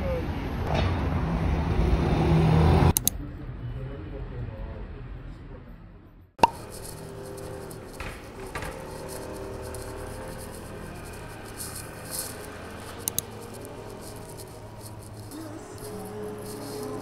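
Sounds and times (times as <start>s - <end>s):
sharp clicks: 2.9s - 3.2s, 6.4s - 17.0s
steady low hum: 6.5s - 17.0s.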